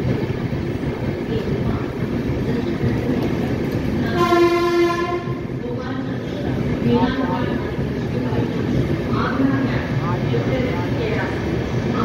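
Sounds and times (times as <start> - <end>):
train rolling low rumble: 0.0 - 12.0
train horn blast: 4.1 - 5.4.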